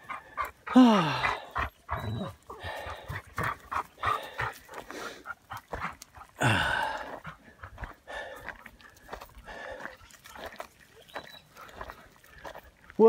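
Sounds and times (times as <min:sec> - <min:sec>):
dog panting: 0:00.0 - 0:06.4, 0:07.0 - 0:12.7
footsteps crunching dry leaves: 0:07.0 - 0:13.0.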